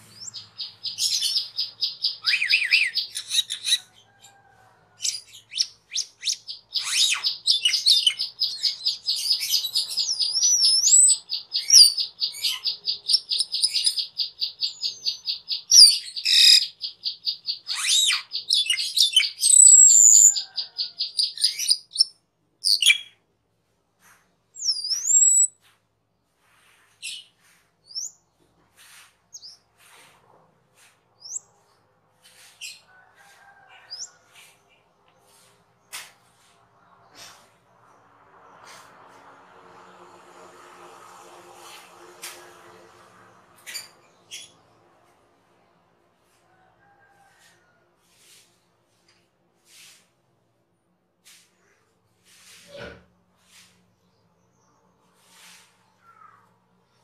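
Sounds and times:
starling singing: 0:00.2 - 0:03.9, 0:05.0 - 0:22.0.

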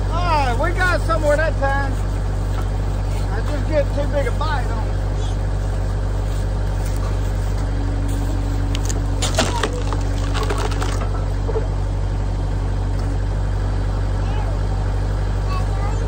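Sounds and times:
tractor engine running: 0:00.0 - 0:16.0
wood cracking and creaking: 0:08.6 - 0:11.7.

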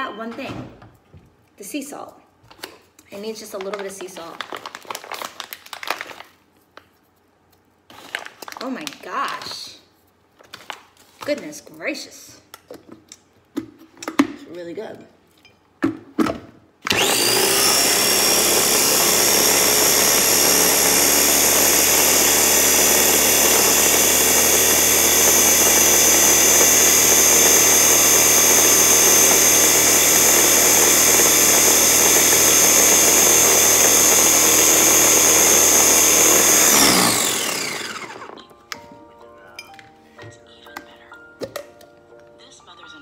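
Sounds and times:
food chopper motor whining: 0:16.8 - 0:38.5.

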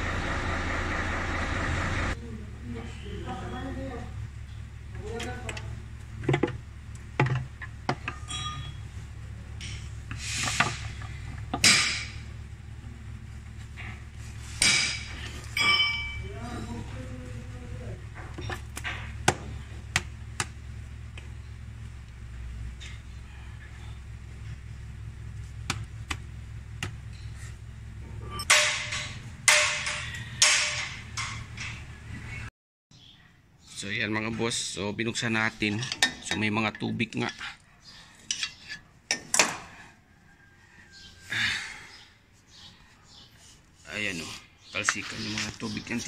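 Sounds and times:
steady low hum: 0:00.0 - 0:32.5
air hissing bursts: 0:10.1 - 0:11.0
truck diesel engine idling: 0:16.3 - 0:28.3.

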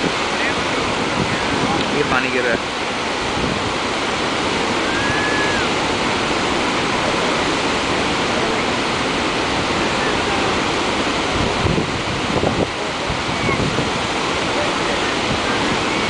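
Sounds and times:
roar of waterfall: 0:00.0 - 0:16.0.

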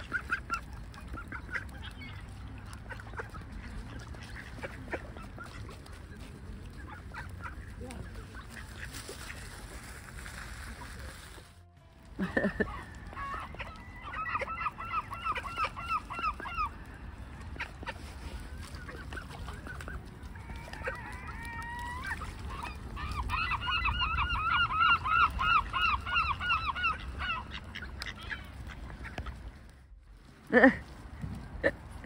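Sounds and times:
gull calling: 0:12.6 - 0:16.8, 0:18.6 - 0:29.4.

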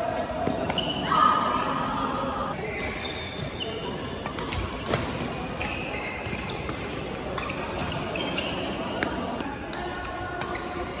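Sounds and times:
shoes squeaking on court: 0:00.4 - 0:04.9, 0:05.5 - 0:09.6.

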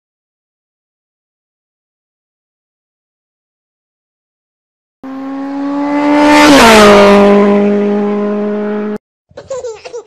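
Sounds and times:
vehicle passing by at speed: 0:05.0 - 0:09.0.

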